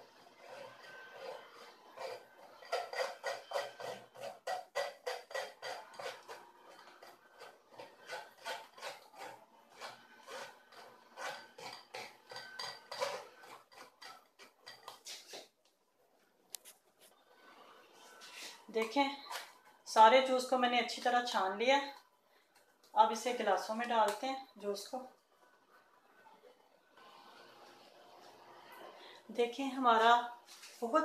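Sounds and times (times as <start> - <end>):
spoon scraping metal sieve: 0.0 - 15.4, 18.0 - 21.6.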